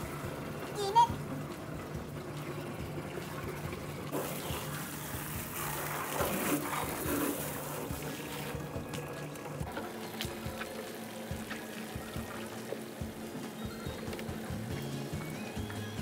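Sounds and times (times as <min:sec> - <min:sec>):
hose water spraying and splashing: 0:00.0 - 0:16.0
water poured from scoop: 0:04.1 - 0:12.9.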